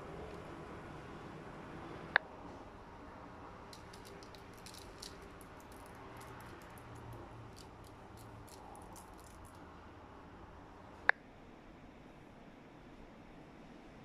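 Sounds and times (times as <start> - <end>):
cookie crumbs sprinkling: 3.7 - 9.6.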